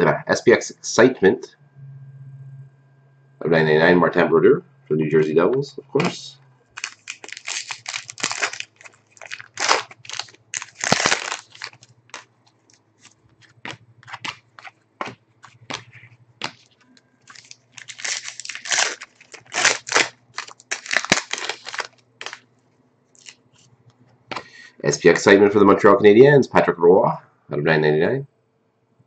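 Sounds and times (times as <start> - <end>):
cards being handled: 6.8 - 22.4
foil wrapper crinkling: 6.8 - 22.4, 23.2 - 23.5.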